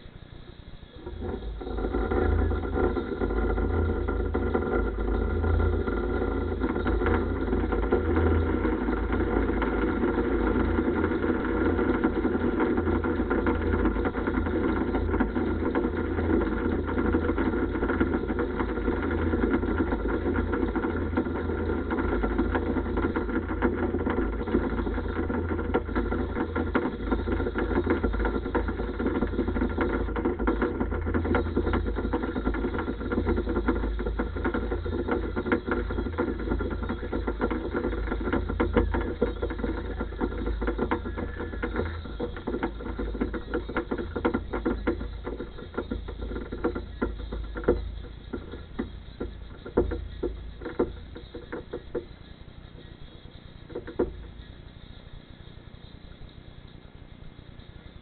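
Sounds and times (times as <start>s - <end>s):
engine running steadily: 0.0s - 56.4s.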